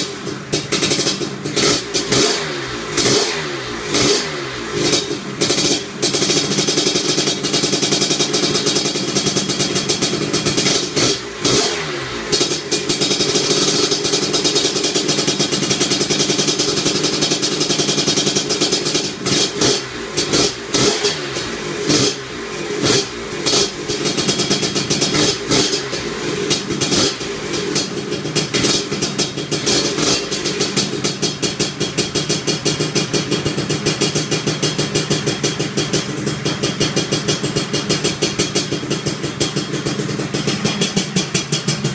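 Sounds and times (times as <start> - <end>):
scooter engine with throttle blips: 0.0 - 41.9.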